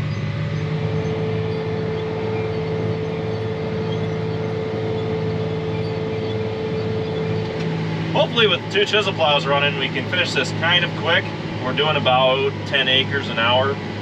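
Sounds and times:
steady whine: 0.0s - 14.0s
tractor diesel engine under load: 0.0s - 14.0s.

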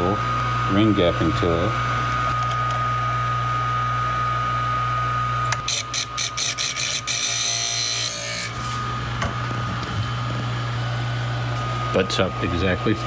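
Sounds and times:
electric filer humming and whining: 0.0s - 13.0s
metal ring grinding on wheel: 5.7s - 8.6s.

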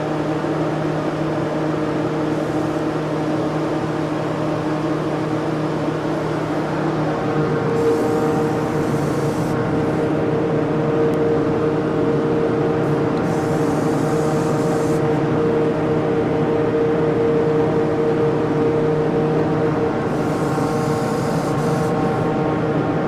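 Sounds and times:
turbine and exhaust fan drone: 0.0s - 23.0s
spray gun air hiss: 7.7s - 10.0s, 12.8s - 15.1s, 20.1s - 22.3s.

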